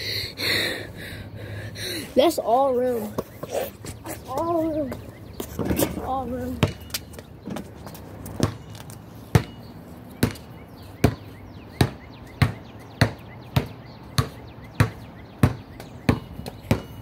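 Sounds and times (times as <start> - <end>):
basketball bouncing: 4.4 - 9.6, 10.2 - 17.0.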